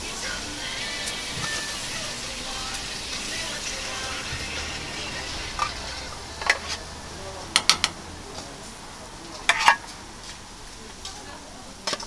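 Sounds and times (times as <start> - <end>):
shrimp sizzling on a griddle: 0.0 - 6.8.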